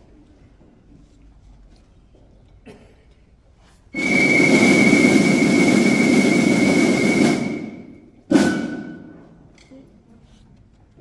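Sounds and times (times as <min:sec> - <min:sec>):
loud drum stroke ringing: 0:04.0 - 0:09.4
marching drum roll: 0:04.0 - 0:09.4.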